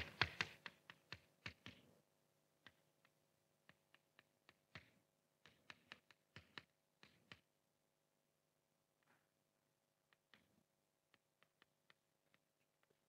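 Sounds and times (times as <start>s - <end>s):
chalk tapping on blackboard: 2.7s - 7.5s.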